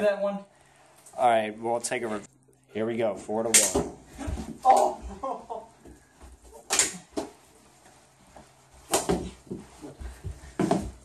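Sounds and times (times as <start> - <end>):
hockey sticks slapping on carpet: 5.8 - 11.0.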